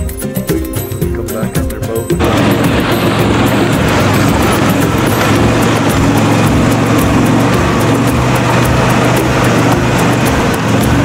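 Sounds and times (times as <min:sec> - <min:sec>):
vehicle engine humming: 0:00.0 - 0:11.0
fast even clicking: 0:02.2 - 0:11.0.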